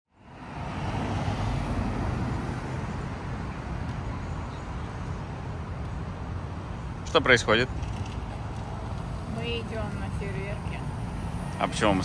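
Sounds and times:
cars passing: 0.1s - 12.0s.

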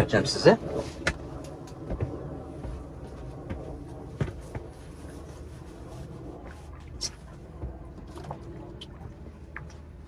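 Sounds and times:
low steady rumble: 0.0s - 10.0s
knocks and footsteps on deck: 1.0s - 5.8s.

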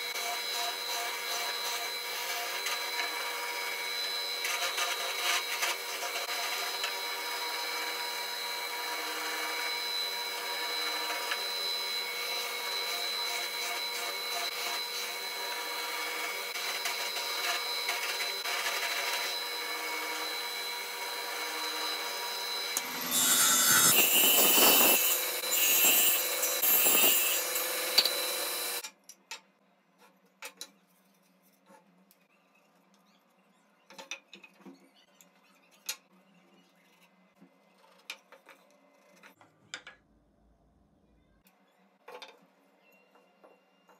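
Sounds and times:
electric drill whining: 2.3s - 28.8s
drill bit rasping wood: 21.3s - 28.8s.

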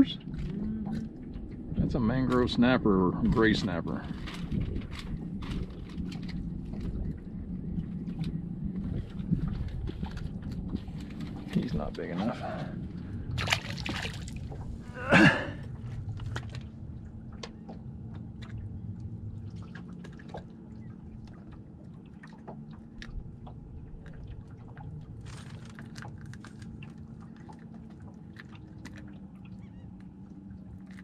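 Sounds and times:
hands handling fish and tackle: 25.2s - 31.0s.

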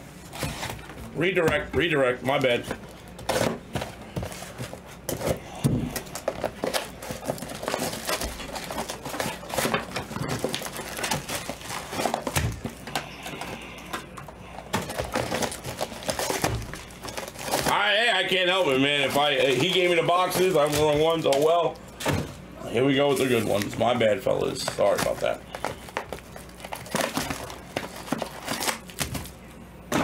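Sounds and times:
wrappers crinkling: 0.3s - 22.0s, 22.9s - 29.4s
cardboard boxes tapping and knocking: 14.7s - 17.8s.

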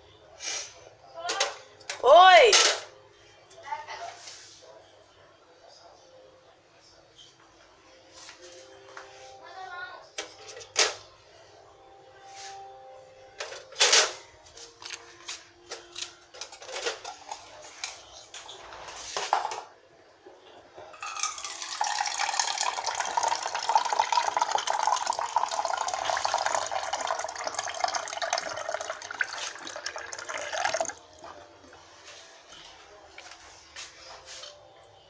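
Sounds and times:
water running into a cup: 21.0s - 31.0s.

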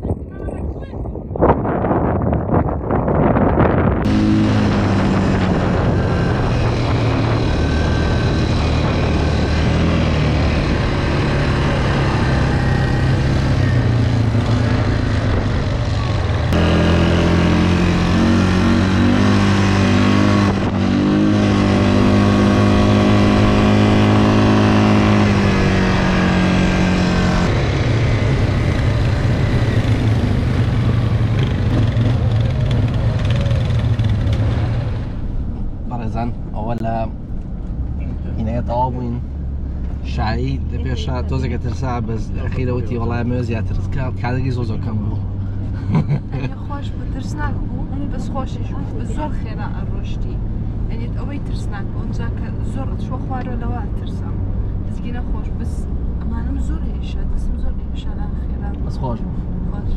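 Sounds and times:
quad bike engines running: 4.0s - 35.2s.

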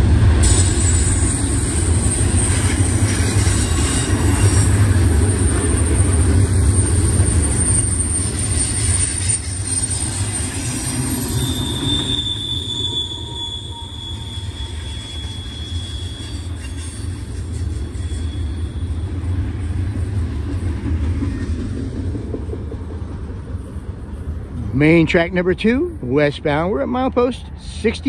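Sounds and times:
train wheels rumbling on rail: 0.0s - 28.0s
high wheel squeal: 0.4s - 21.6s.

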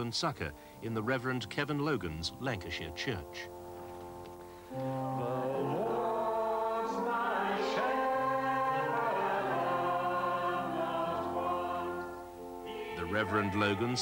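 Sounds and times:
congregation singing a hymn: 4.7s - 14.0s.

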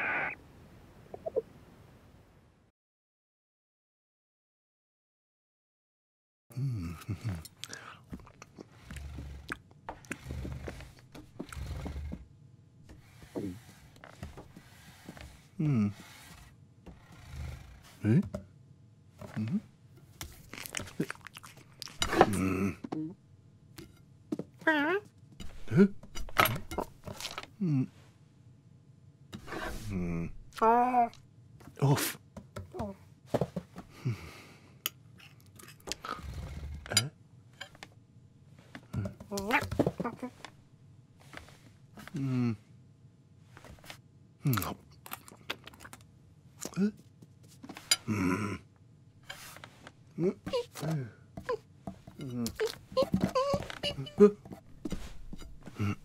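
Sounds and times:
falling vocal sound: 0.0s - 0.4s
man humming contentedly: 6.5s - 7.9s, 15.6s - 16.0s, 22.1s - 23.2s, 27.6s - 28.0s, 42.1s - 42.7s, 48.0s - 48.7s, 55.7s - 56.0s
short low voice sounds: 42.1s - 42.7s.

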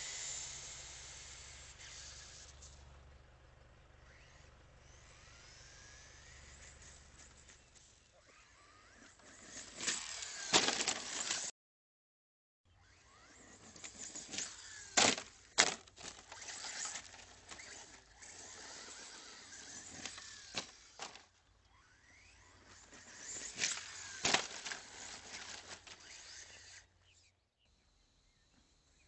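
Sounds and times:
electric motor whining: 0.0s - 2.8s, 4.0s - 11.5s, 12.7s - 27.3s
tyres scraping on dirt: 4.1s - 11.5s, 12.9s - 27.3s
toy truck body hitting ground: 9.4s - 11.5s, 13.8s - 18.0s, 19.8s - 21.3s, 23.3s - 26.0s.

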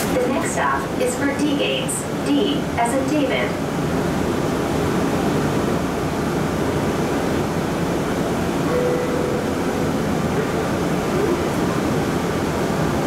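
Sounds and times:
train car rumbling: 0.0s - 13.0s
brief low tone: 8.7s - 10.6s.

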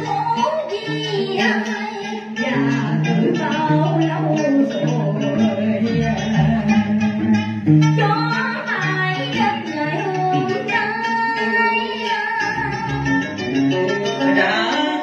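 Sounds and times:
plucked guitar: 0.0s - 15.0s
person singing ornamented phrases: 1.0s - 7.5s.

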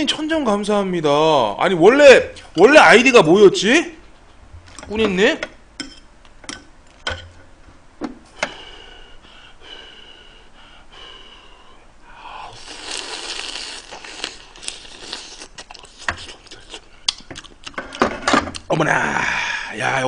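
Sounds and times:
wet slurping and sucking: 12.4s - 16.9s.

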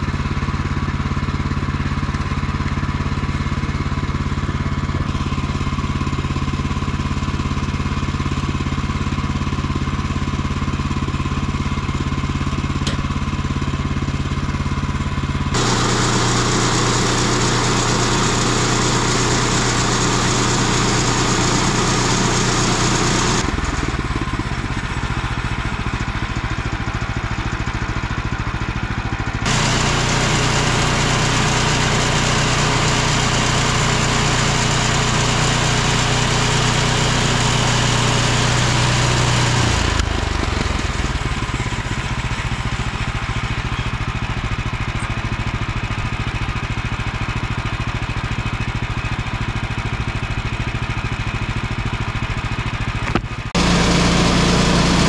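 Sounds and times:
small gas engine humming: 0.0s - 55.0s
band blade sawing log: 15.6s - 23.9s, 53.6s - 55.0s.

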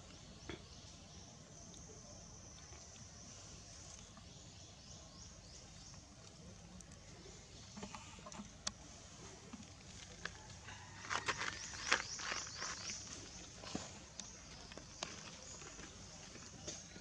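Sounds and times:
rustling dry grass and leaves: 6.1s - 16.7s.

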